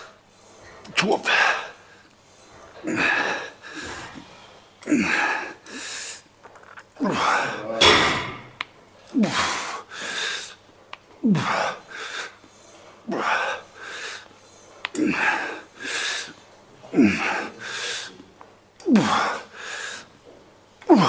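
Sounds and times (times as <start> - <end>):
man exhaling and grunting: 2.8 - 4.2, 11.2 - 11.8, 16.9 - 17.9, 18.8 - 19.4.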